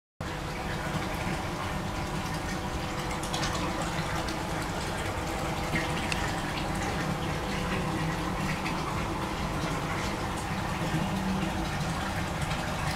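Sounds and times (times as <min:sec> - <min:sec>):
low steady hum: 0:00.2 - 0:12.9
water running and bubbling: 0:00.2 - 0:12.9
small splashy ticks: 0:05.7 - 0:08.8.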